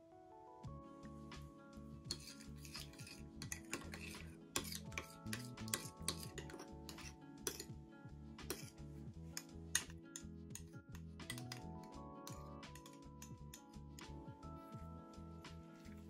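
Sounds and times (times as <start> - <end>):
background music: 0.0 - 16.0
spoon clinking and scraping bowl: 2.1 - 7.7, 8.4 - 8.7, 9.4 - 14.1.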